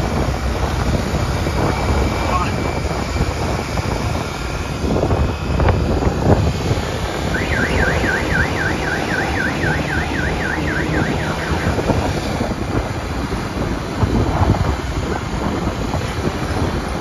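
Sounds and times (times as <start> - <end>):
motorbike engine and road noise: 0.0 - 17.0
wind buffeting microphone: 0.0 - 17.0
warbling electronic tone: 7.2 - 12.2.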